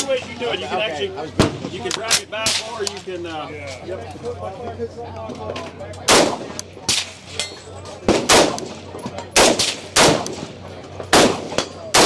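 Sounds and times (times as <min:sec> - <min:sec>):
faint gunshots: 0:06.1 - 0:07.2, 0:08.0 - 0:12.0
rifle shots: 0:06.1 - 0:07.2, 0:08.0 - 0:12.0.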